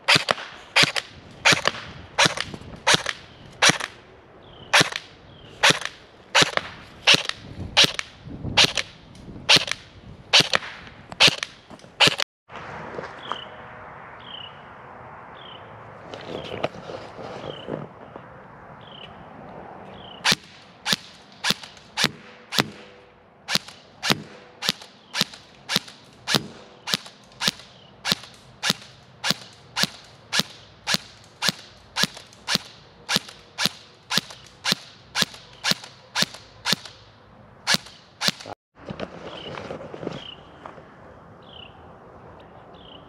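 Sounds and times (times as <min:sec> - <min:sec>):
airsoft rifle shots: 0:00.0 - 0:04.0, 0:04.7 - 0:12.2, 0:20.2 - 0:37.0, 0:37.7 - 0:38.6.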